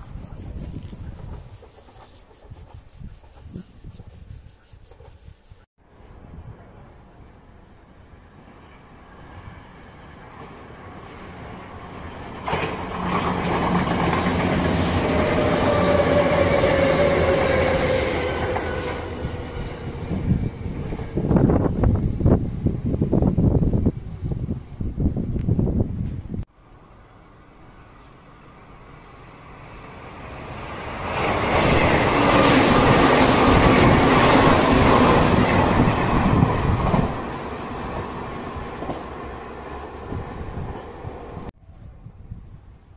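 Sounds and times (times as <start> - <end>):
electric train rumbling past: 5.8 - 42.9
rail-joint clatter: 12.2 - 15.1.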